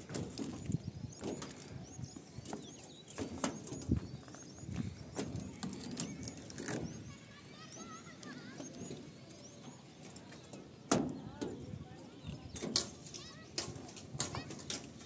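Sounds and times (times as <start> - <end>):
small birds chirping: 0.0 - 15.0
clicks and knocks: 12.6 - 15.0.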